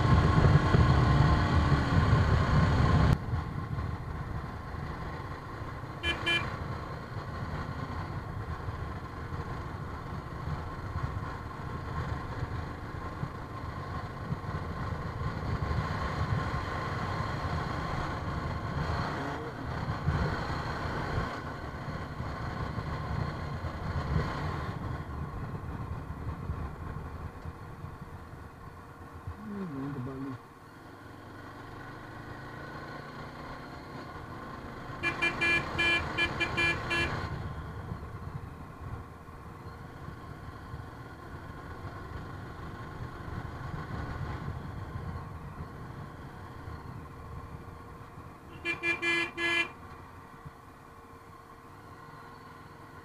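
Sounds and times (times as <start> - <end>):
wind rumble: 0.0 - 5.5, 6.8 - 29.6, 35.6 - 48.6
vehicle horn toot: 6.0 - 6.5, 35.0 - 37.2, 48.5 - 49.8.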